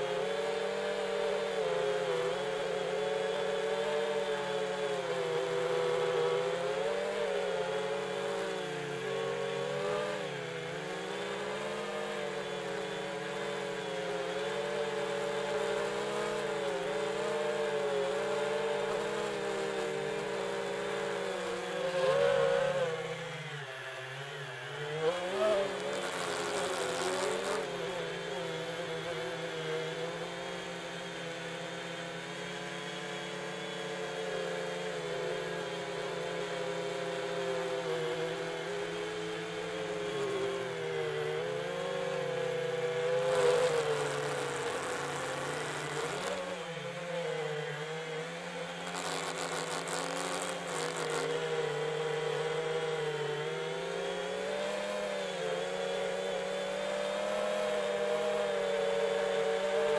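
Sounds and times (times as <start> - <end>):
drone propellers whining: 3.9 - 30.4.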